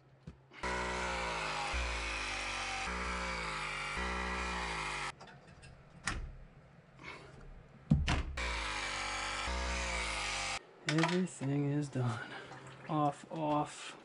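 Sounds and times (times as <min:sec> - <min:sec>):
press tool motor whine: 0:00.6 - 0:05.1, 0:08.4 - 0:10.6.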